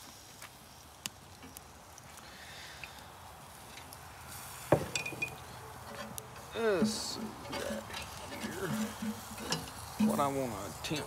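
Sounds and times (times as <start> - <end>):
grill fire crackling: 0.0 - 11.0
metal utensil clanking on grill: 4.7 - 11.0.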